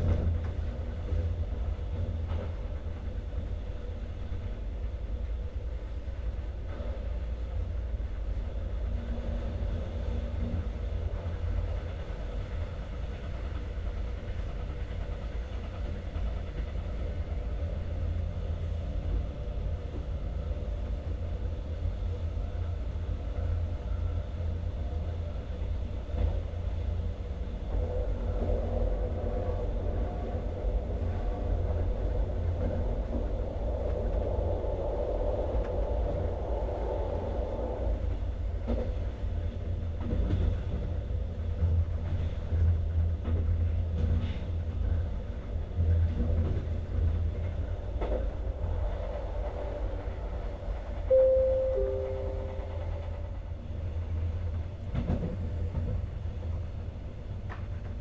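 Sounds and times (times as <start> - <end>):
train wheels rumbling on rails: 0.0 - 58.0
higher drone: 51.1 - 53.4.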